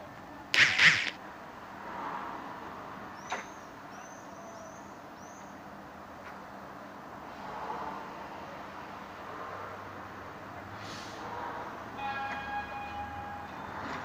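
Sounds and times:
sharp knock: 0.6s - 1.2s
air hiss from railcar: 10.7s - 11.6s.

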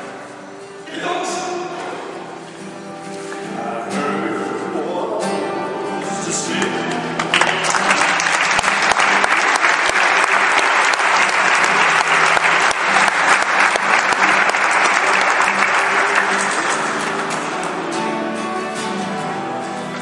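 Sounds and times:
audience clapping: 6.4s - 19.0s.

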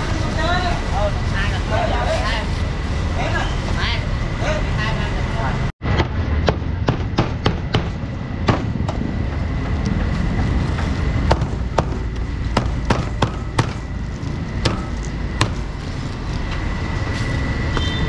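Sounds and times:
market street noise: 0.0s - 18.0s.

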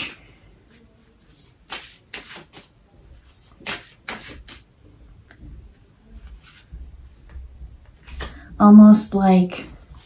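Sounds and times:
cards rustling: 1.4s - 4.6s
cards swishing and snapping: 1.6s - 2.7s, 3.3s - 4.6s.

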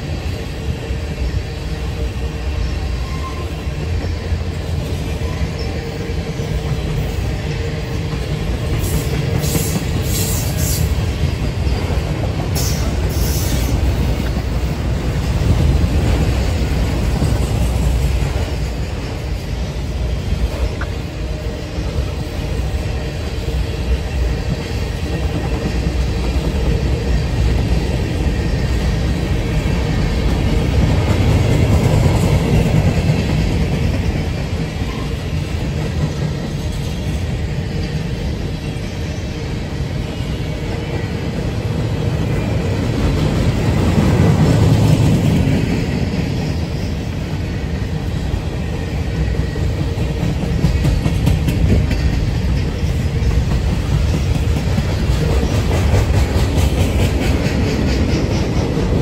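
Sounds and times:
freight train cars rolling past: 0.0s - 59.0s
wheels clacking over rail joints: 49.8s - 59.0s.

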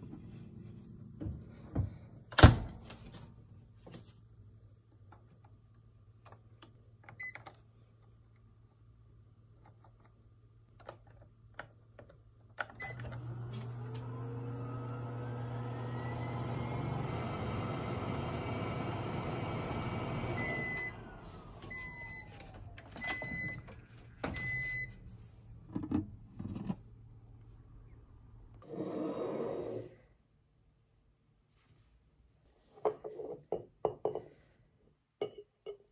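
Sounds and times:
microwave running hum: 12.6s - 25.1s
microwave button beeps: 12.8s - 13.1s, 20.4s - 21.0s, 21.7s - 22.3s, 23.0s - 23.7s, 24.3s - 24.9s.

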